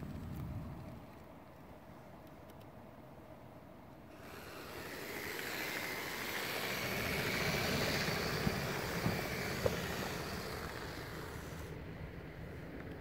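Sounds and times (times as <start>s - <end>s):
steady hiss: 4.0s - 13.0s
small electric motor whining: 4.2s - 11.8s.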